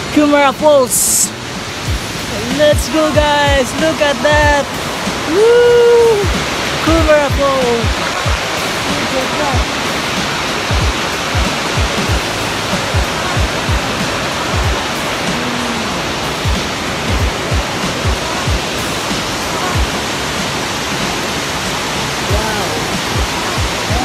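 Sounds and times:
waterfall roaring: 0.0 - 24.0
low thumps on microphone: 10.6 - 15.8, 16.4 - 18.7.

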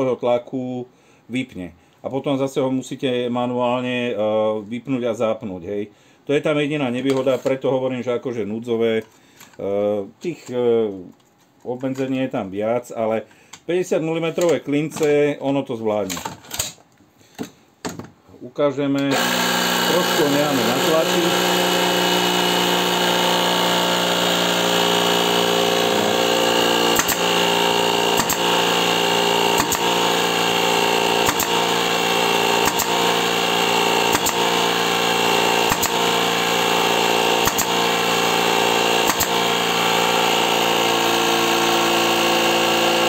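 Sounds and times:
compressor motor hum: 19.0 - 43.0.

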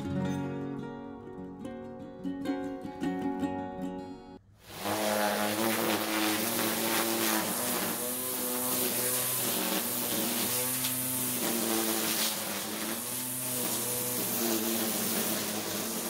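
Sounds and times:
string trimmer cutting grass: 4.6 - 16.0.

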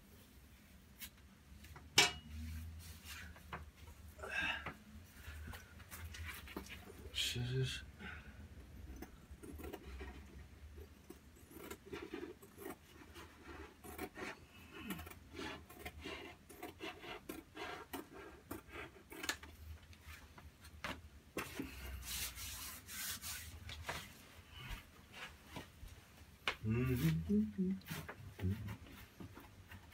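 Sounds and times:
paper brushed against wall: 2.3 - 3.9, 21.4 - 26.0
scissors cutting wallpaper: 8.9 - 19.6.

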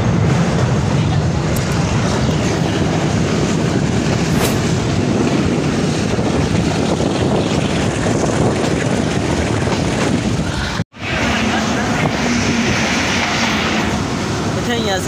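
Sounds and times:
passenger train rushing at speed: 0.0 - 15.0
wind rushing past: 2.6 - 8.5.

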